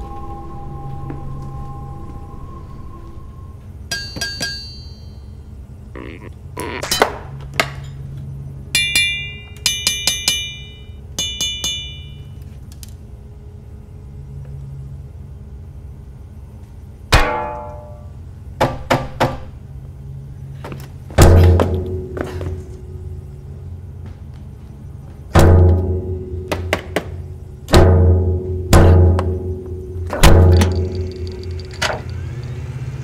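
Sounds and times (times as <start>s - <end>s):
low machine hum: 0.0s - 33.0s
metal clinks and pings: 3.9s - 5.4s, 8.7s - 12.4s.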